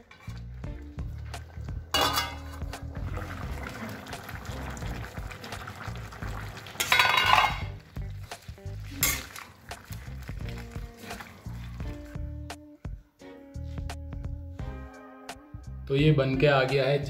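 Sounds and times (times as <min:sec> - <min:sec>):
curry bubbling in a pot: 0:00.4 - 0:12.3
metal lid and utensil clinks: 0:02.0 - 0:02.7, 0:06.8 - 0:07.7, 0:09.0 - 0:09.4.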